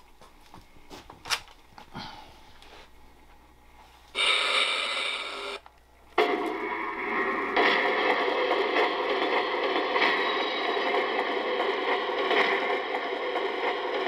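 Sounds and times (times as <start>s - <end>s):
model train wheel sound effect: 4.1s - 14.0s.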